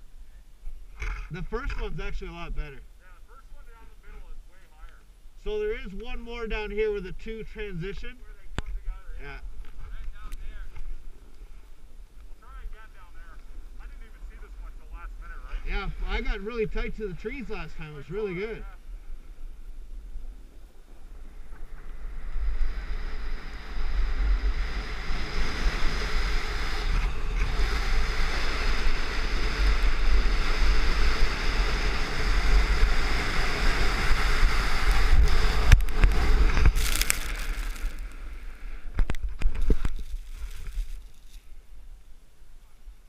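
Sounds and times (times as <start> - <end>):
skis hissing over snow: 21.7 - 38.8, 39.6 - 41.6.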